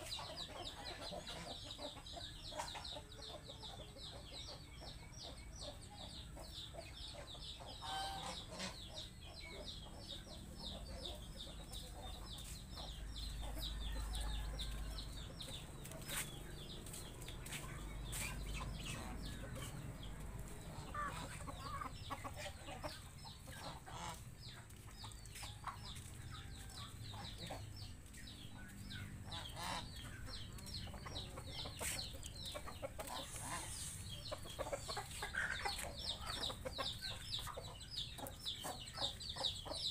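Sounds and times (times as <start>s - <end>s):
chickens clucking: 0.0s - 39.9s.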